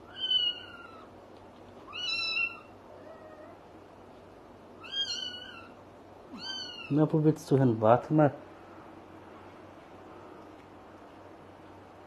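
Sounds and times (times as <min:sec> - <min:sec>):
kitten meowing: 0:00.0 - 0:01.1, 0:01.9 - 0:03.6, 0:04.8 - 0:07.0.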